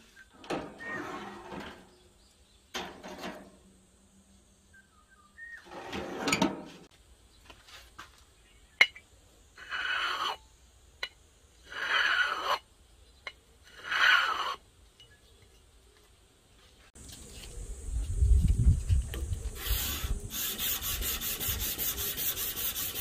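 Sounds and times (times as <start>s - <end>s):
knife scraping glass bottle: 9.6s - 10.4s, 11.7s - 12.6s, 13.7s - 14.6s.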